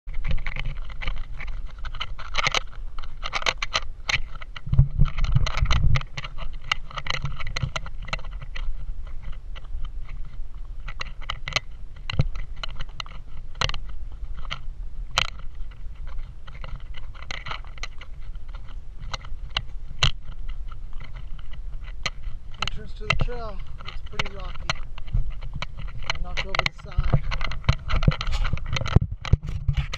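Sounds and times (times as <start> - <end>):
steady low rumble: 0.1 - 29.4
hooves clicking on stones: 0.1 - 29.9.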